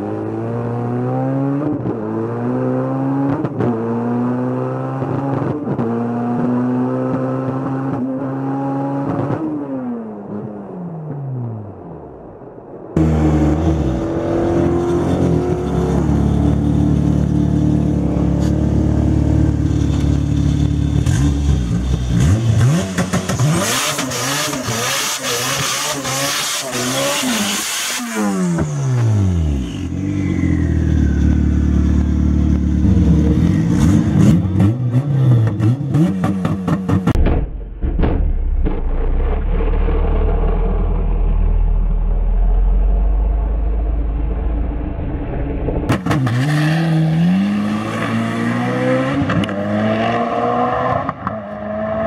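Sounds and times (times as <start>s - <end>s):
car engine revving: 13.0s - 52.0s.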